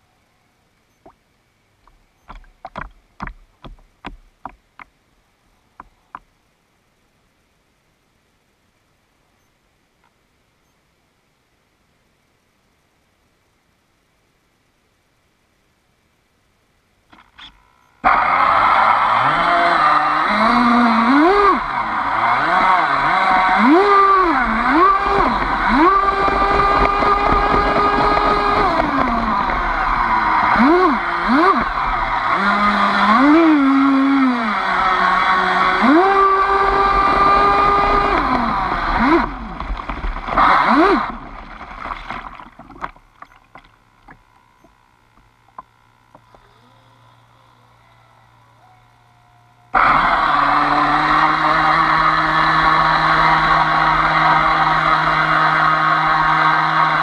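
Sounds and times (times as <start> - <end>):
small waves slapping against hull: 1.8 - 4.9, 38.0 - 44.2
electric motor whine: 17.5 - 41.4, 43.2 - 57.0.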